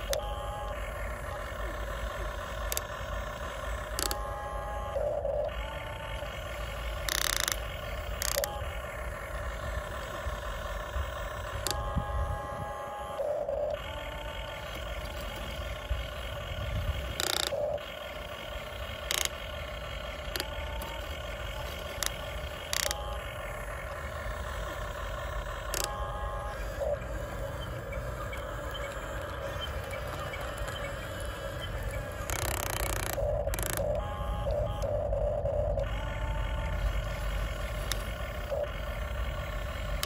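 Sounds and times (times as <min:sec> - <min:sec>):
electric motors whining: 0:00.0 - 0:40.0.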